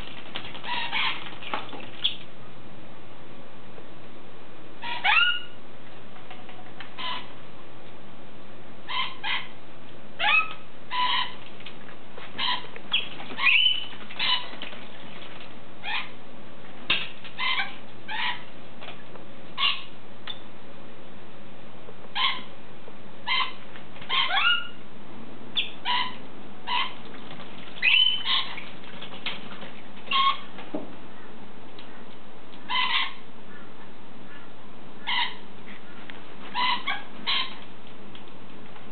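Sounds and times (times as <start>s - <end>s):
parrot squawks and chirps: 0.5s - 1.4s, 4.8s - 5.6s, 6.9s - 7.4s, 8.9s - 9.6s, 10.2s - 11.5s, 12.3s - 14.7s, 15.8s - 16.2s, 16.9s - 18.5s, 19.6s - 20.4s, 22.1s - 22.5s, 23.2s - 24.8s, 25.6s - 27.0s, 27.8s - 28.7s, 30.0s - 30.5s, 32.6s - 33.7s, 34.3s - 35.5s, 36.5s - 37.6s.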